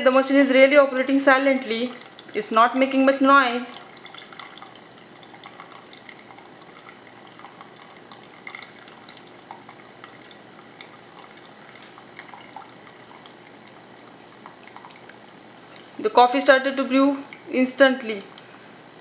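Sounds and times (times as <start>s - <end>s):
coffee maker hissing: 1.5s - 15.9s
pops and drips: 1.7s - 2.5s, 3.7s - 15.5s, 17.3s - 19.0s.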